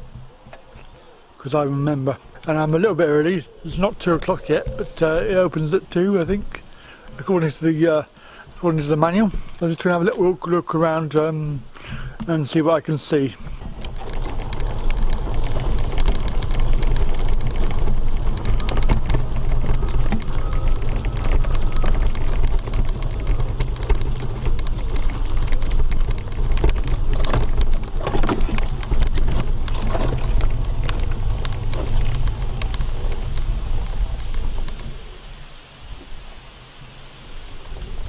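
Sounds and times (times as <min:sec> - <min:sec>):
mobility scooter rumble and hiss: 0:10.2 - 0:38.0.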